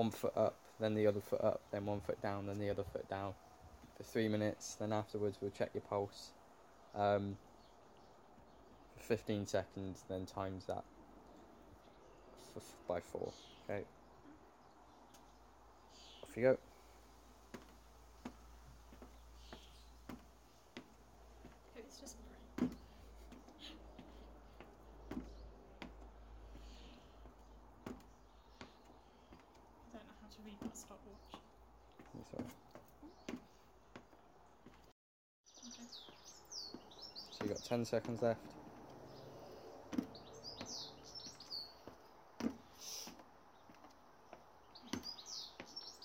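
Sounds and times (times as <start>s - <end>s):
small birds chirping: 0.0s - 46.0s
footsteps on plastic step: 17.4s - 34.9s, 39.8s - 46.0s.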